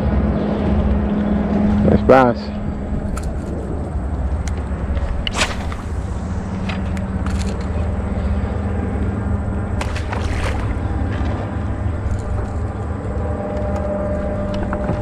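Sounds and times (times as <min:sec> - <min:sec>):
boat motor running: 0:00.0 - 0:15.0.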